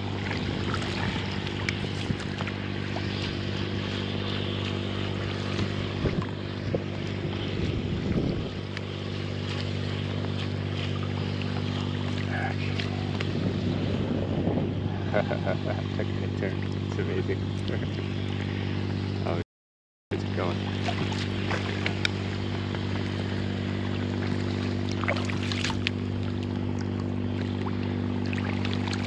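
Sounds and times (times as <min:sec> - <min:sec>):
wind on microphone: 0:00.0 - 0:18.0
water slapping against hull: 0:00.0 - 0:18.6, 0:20.2 - 0:29.0
boat motor running: 0:00.0 - 0:19.4, 0:20.1 - 0:29.0.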